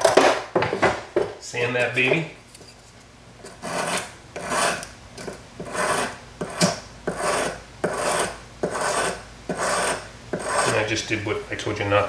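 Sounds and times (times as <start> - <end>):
sanding stick rasping on metal: 3.5 - 10.8.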